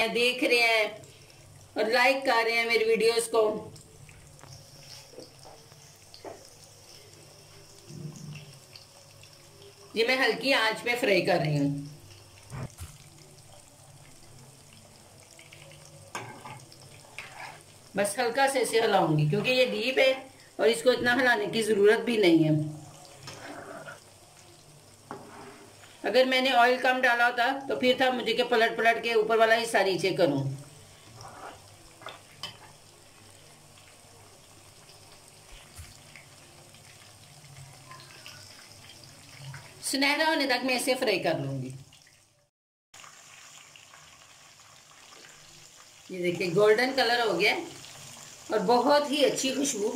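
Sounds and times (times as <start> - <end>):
chicken deep-frying in oil: 0.0 - 49.9
spatula scraping through food: 16.2 - 17.8, 23.2 - 24.0, 25.1 - 25.9, 31.0 - 31.7.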